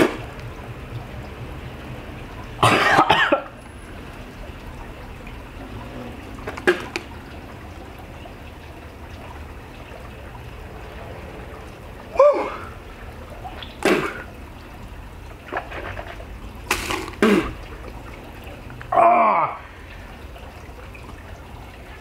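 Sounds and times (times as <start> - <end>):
man coughing: 2.6 - 3.5
man groaning: 12.1 - 12.7, 18.9 - 19.7.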